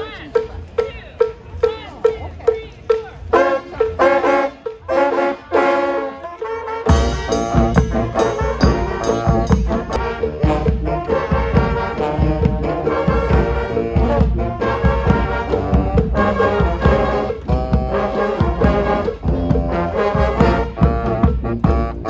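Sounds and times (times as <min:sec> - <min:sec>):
brass band playing: 0:03.2 - 0:22.0
bass drum beat: 0:06.9 - 0:22.0.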